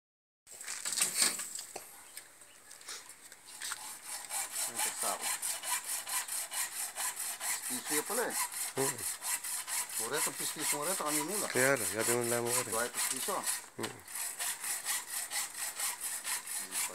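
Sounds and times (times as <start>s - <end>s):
rhythmic rasping strokes: 3.6s - 16.9s.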